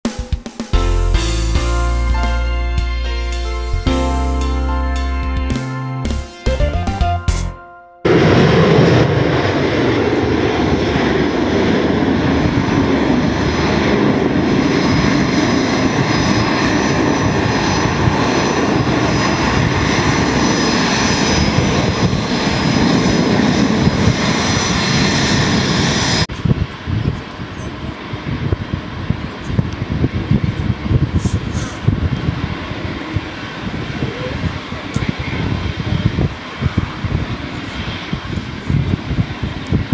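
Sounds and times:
jet engines roaring: 0:08.0 - 0:39.9.

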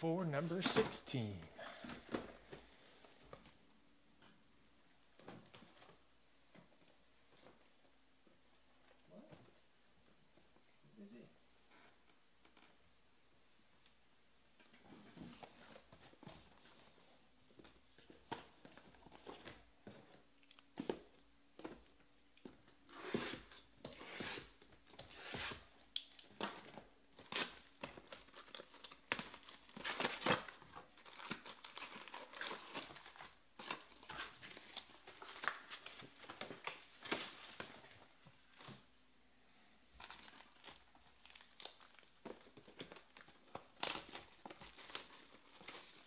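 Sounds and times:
wrapping tearing and crinkling: 0:22.8 - 0:38.8, 0:40.0 - 0:46.0
foil packs crackling: 0:27.2 - 0:37.6, 0:40.0 - 0:46.0.

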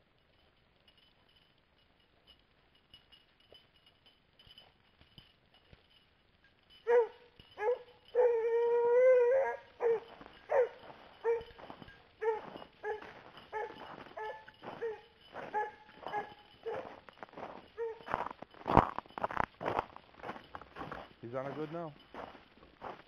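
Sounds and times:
hound baying and barking: 0:06.7 - 0:18.4.

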